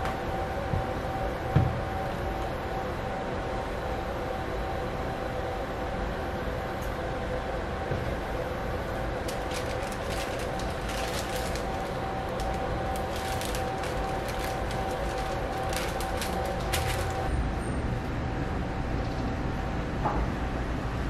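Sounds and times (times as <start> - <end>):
steady background hum: 0.0 - 21.0
paper wrapper crinkling: 9.1 - 17.3.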